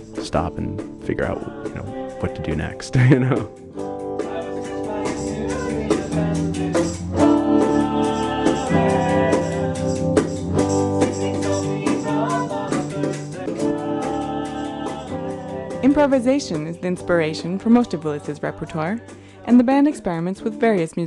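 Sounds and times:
bass guitar: 0.0 - 19.3
keyboard: 0.0 - 21.0
person singing: 0.1 - 10.0, 11.0 - 20.8
drum strikes: 3.0 - 3.7
electric guitar: 3.0 - 17.3.

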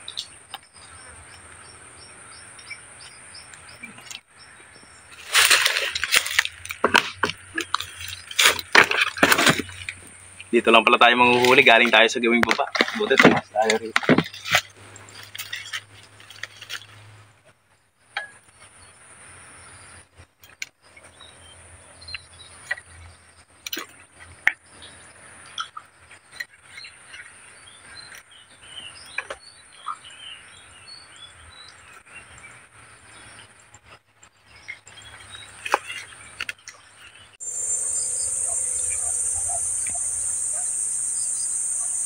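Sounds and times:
birds chirping: 0.0 - 15.9, 20.8 - 42.0
high-pitched insect drone: 37.4 - 42.0.

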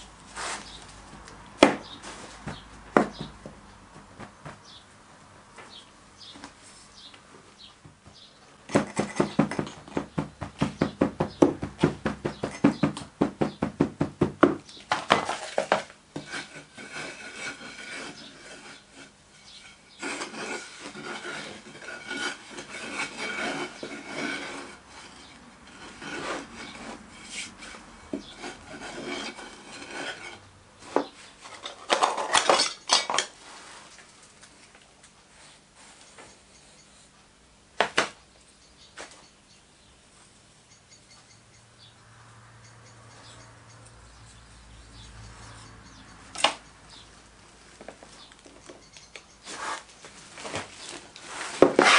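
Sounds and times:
wooden bar scraping sand: 0.3 - 0.8, 14.9 - 32.6, 49.4 - 51.9.

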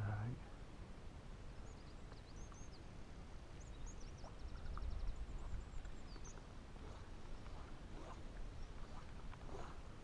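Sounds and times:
small bird chirping and trilling: 3.6 - 9.7.

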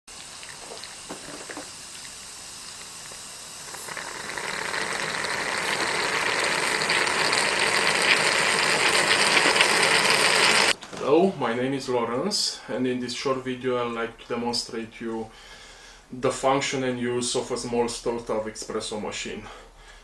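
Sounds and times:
espresso maker hissing and gurgling: 0.1 - 10.8.

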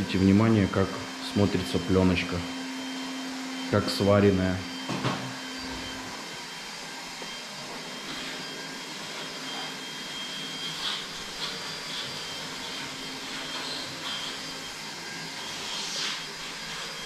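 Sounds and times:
small motor whirring: 5.5 - 17.0.

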